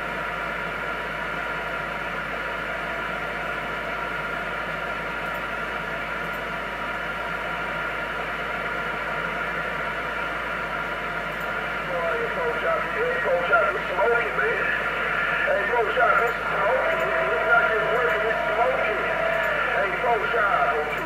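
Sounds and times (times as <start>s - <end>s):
radio static hiss: 11.8s - 21.0s.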